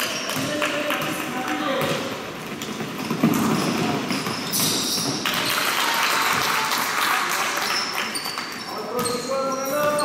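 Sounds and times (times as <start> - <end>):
din of players and spectators: 0.0 - 10.0
shoe squeaks: 3.2 - 5.6, 7.7 - 10.0.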